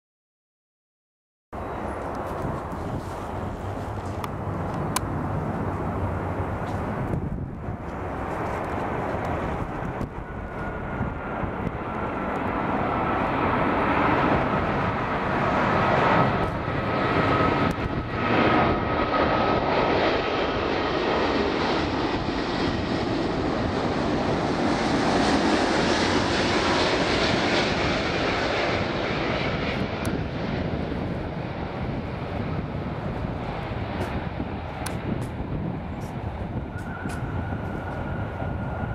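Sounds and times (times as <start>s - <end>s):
high fan whine: 1.6s - 12.5s
jet airliner noise: 1.6s - 38.9s.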